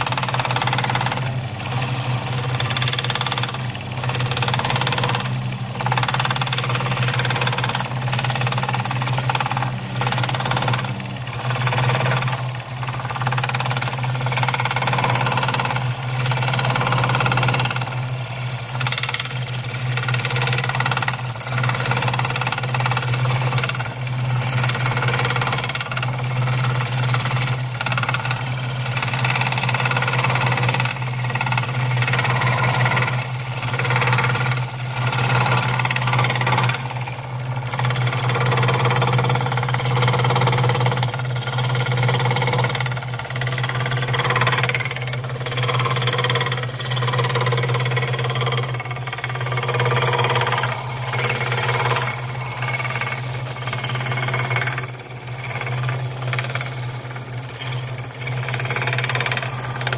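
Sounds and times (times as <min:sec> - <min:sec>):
low motor hum: 0:00.0 - 0:59.9
scroll saw cutting wood: 0:26.3 - 0:59.9.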